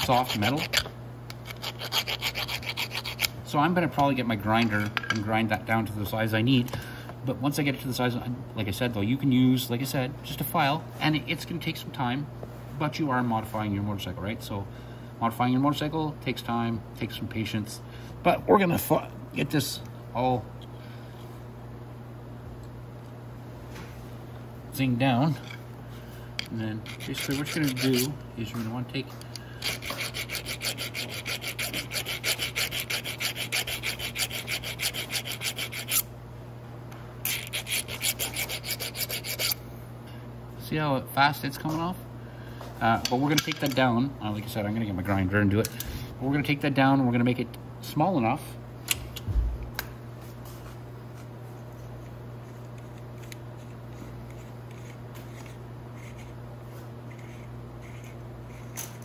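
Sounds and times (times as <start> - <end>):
hand file rasping on metal: 0.0 - 3.3, 26.8 - 28.2, 29.6 - 36.1, 37.3 - 39.6, 52.6 - 56.4, 57.1 - 58.8
low electrical hum: 0.0 - 59.0
metal scrapes and clicks: 26.4 - 28.2.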